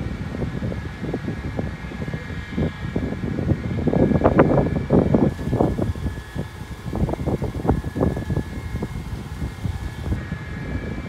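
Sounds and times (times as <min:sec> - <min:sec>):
machine drone with high whine: 0:00.0 - 0:11.0.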